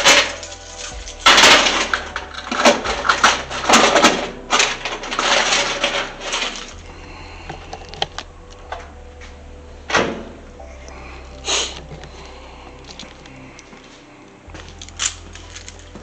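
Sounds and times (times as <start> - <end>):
metal box clanking: 0.0 - 6.8.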